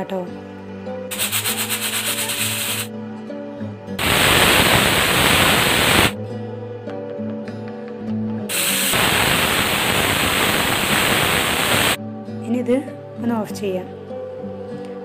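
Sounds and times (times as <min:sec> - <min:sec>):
pressure cooker whistle hissing: 0:01.1 - 0:02.9, 0:04.0 - 0:06.2, 0:08.5 - 0:12.0.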